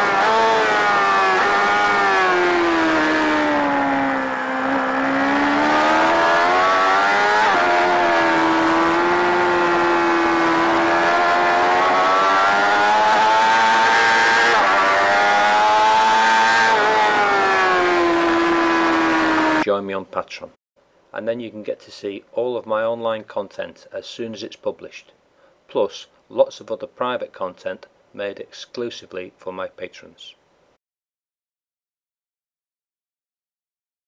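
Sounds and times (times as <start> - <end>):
motorcycle engine at high revs: 0.0 - 19.6.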